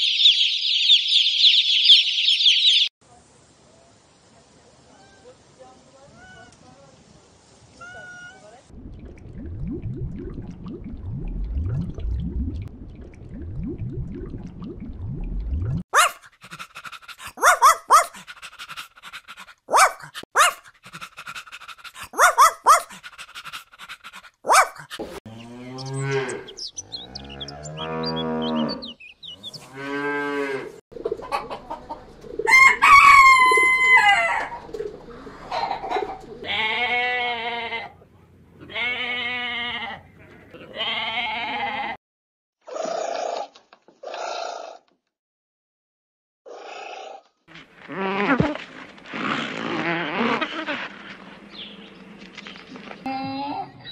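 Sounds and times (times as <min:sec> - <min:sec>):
rooster crowing: 0:32.5 - 0:34.6.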